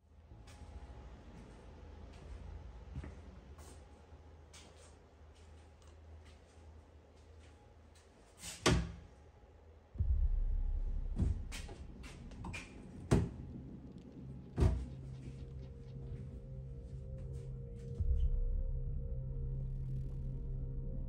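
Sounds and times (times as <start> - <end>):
low rumble: 9.9 - 21.0.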